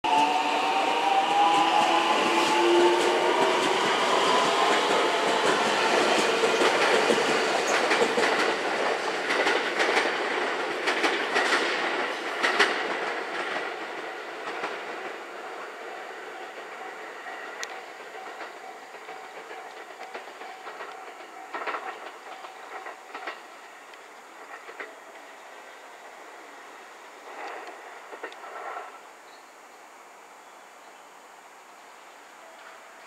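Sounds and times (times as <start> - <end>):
train motor whine: 0.1 - 7.8
wheels clattering over rail joints: 3.4 - 15.2, 16.5 - 25.5.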